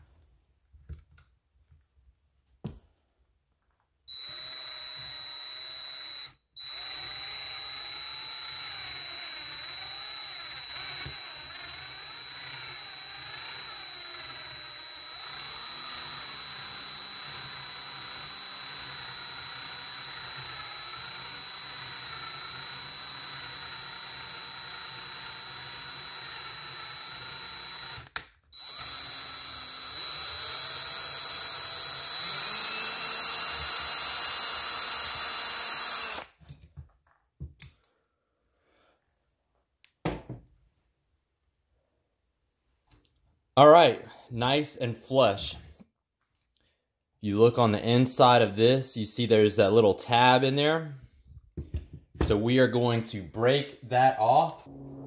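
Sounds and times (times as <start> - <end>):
power drill whining: 4.1 - 36.4.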